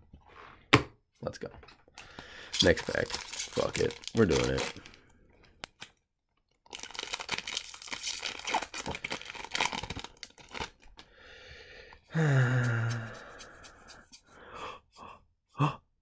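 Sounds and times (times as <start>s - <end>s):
cards rustling: 2.6s - 5.0s, 6.7s - 11.0s
foil pack tearing and crinkling: 2.6s - 5.0s, 6.7s - 10.8s
short vocal sound: 12.1s - 13.4s.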